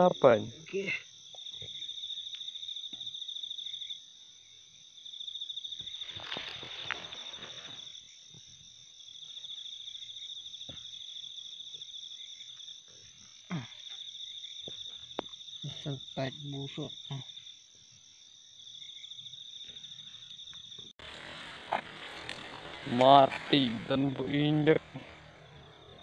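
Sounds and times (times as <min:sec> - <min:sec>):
night insects trilling: 0:00.0 - 0:26.0
rustling: 0:05.9 - 0:07.9, 0:21.0 - 0:26.0.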